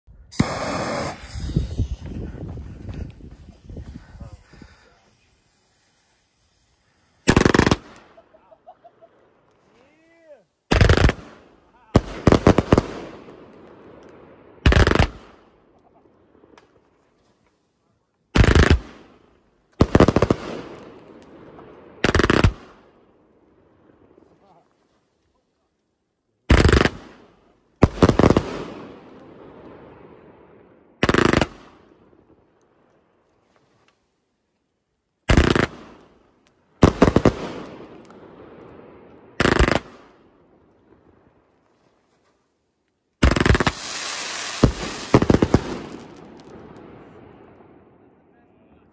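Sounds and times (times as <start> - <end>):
firework hiss: 0.2 - 8.2, 43.2 - 46.6
firework cake volleys: 0.2 - 14.1, 43.2 - 47.6.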